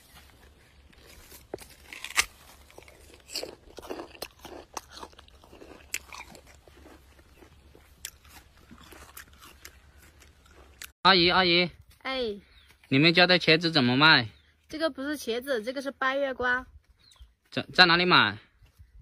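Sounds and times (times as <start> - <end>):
crunchy chewing: 0.0 - 11.0
biting into a peach: 0.8 - 10.9.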